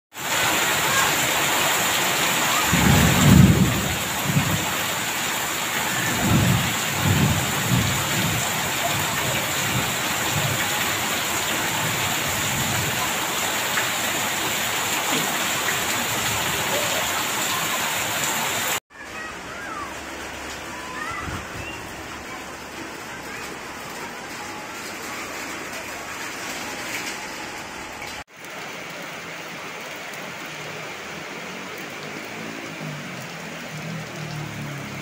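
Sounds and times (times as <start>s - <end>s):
heavy rain on tiled paving: 0.1s - 35.0s
thunder rumbling: 2.4s - 13.1s.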